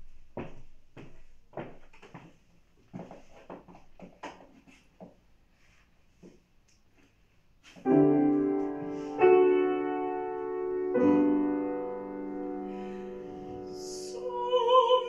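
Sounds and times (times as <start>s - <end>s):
faint rustles and knocks: 0.0s - 9.2s
grand piano chords ringing: 7.9s - 14.7s.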